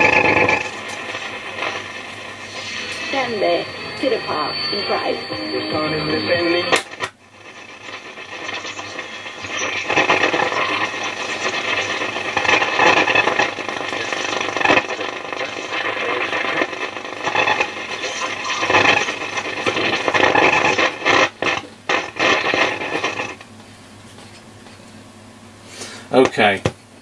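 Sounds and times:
faint radio broadcast: 0.0 - 21.2
radio static hiss: 0.0 - 23.5.

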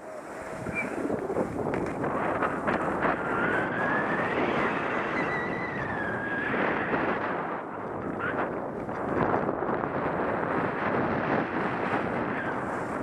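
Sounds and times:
wind on microphone: 0.0 - 13.0
thin whistle: 0.7 - 1.0.

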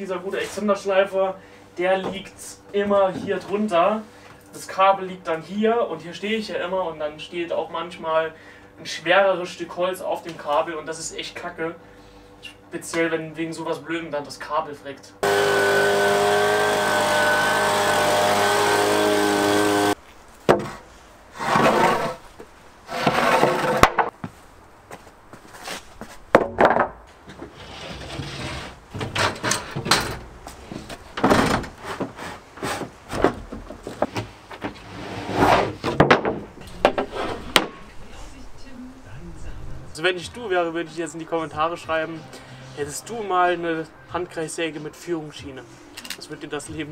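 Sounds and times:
wooden boards scraping on paving: 20.4 - 24.2, 25.5 - 29.7, 30.5 - 36.1, 36.8 - 37.9
footsteps on paving: 24.1 - 26.3.

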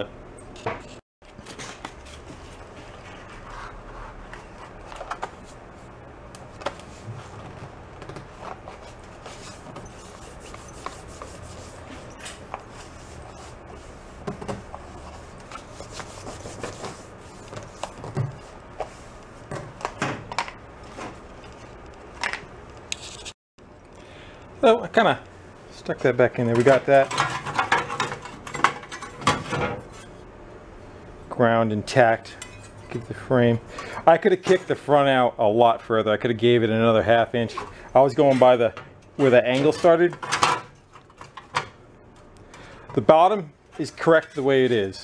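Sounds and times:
paper rubbing on steel table: 9.2 - 14.2.

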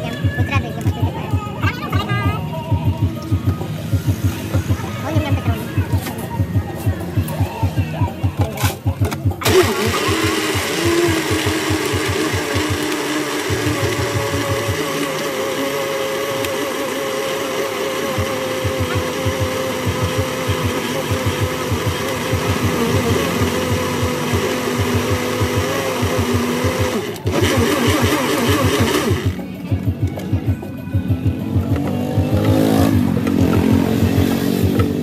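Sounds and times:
blender motor whining: 9.3 - 29.4.

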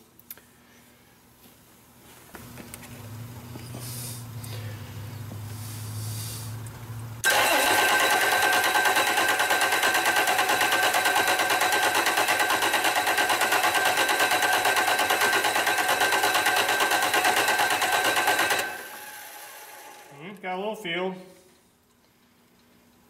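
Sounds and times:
starter cranking diesel engine: 7.2 - 20.1.

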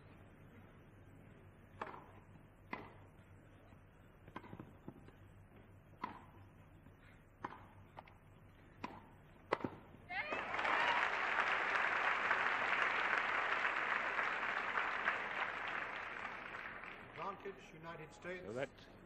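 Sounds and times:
tennis ball struck by rackets: 1.8 - 3.0, 4.3 - 5.0, 6.0 - 6.4, 7.4 - 8.2, 8.8 - 9.9.

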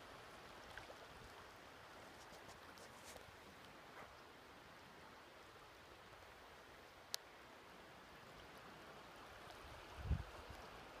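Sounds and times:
shallow river flowing: 0.0 - 11.0.

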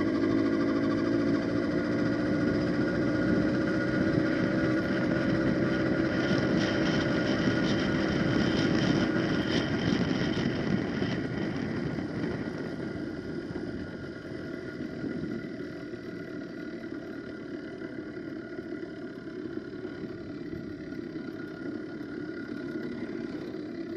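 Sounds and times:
rushing wind: 0.0 - 15.9
road noise: 0.0 - 23.9
two-stroke bicycle engine running: 0.0 - 23.9.

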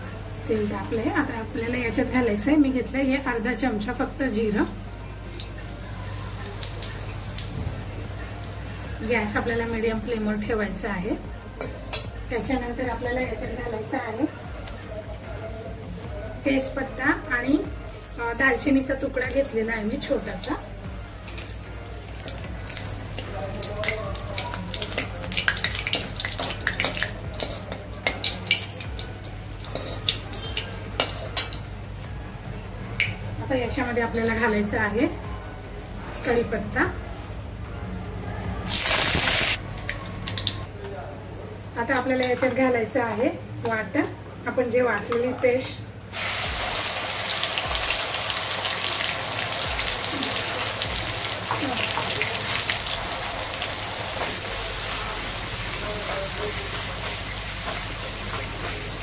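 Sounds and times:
spices sizzling in hot oil: 5.2 - 14.8, 18.2 - 31.8, 38.7 - 40.6, 45.6 - 59.0
ladle stirring: 23.2 - 31.6
paste sizzling in hot oil: 38.7 - 39.6, 46.1 - 59.0.

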